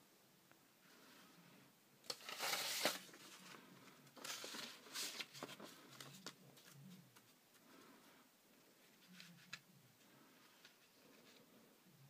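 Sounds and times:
paper and cardboard rustling: 2.1s - 7.6s.

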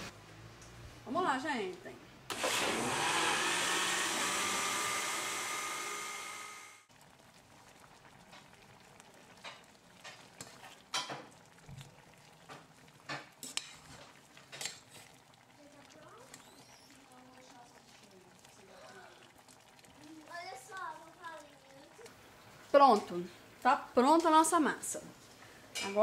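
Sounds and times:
blender motor whine: 2.3s - 6.9s
metal spoon scraping a pot: 13.4s - 14.0s.

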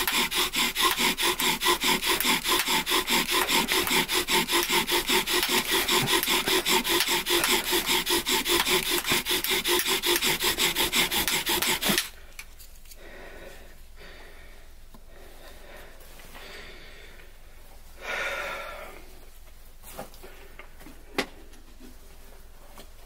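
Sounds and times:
bow drill rasping on wood: 0.0s - 12.2s.

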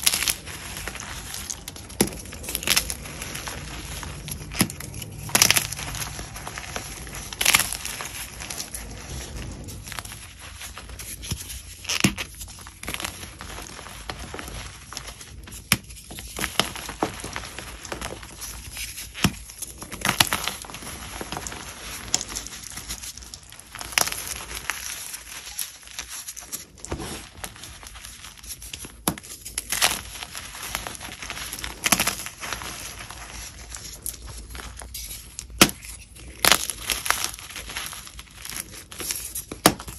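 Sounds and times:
crisp crackly chewing: 0.0s - 39.9s.

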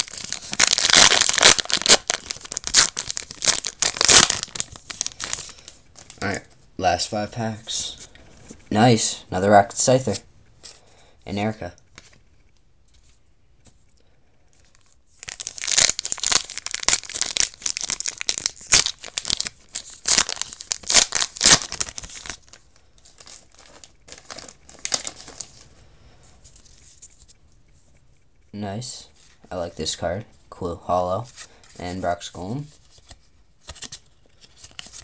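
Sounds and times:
foil wrapper tearing and crinkling: 0.0s - 6.2s, 15.2s - 25.6s.

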